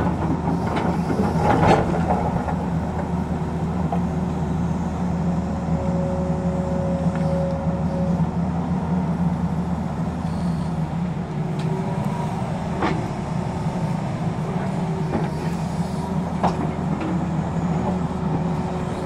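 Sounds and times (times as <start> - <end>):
excavator diesel engine running: 0.0 - 19.0
hydraulic whine: 4.2 - 8.6, 10.0 - 19.0.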